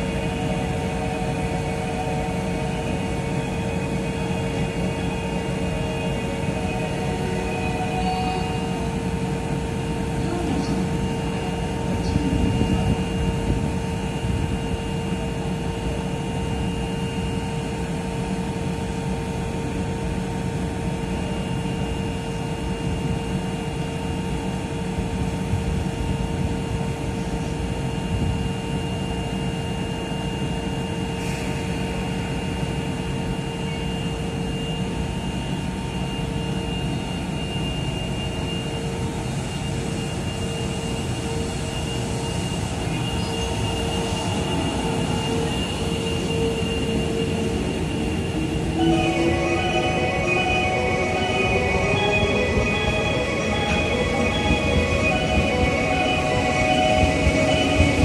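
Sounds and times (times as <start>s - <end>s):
electric train equipment hum: 0.0s - 58.0s
high whining tones: 39.5s - 58.0s.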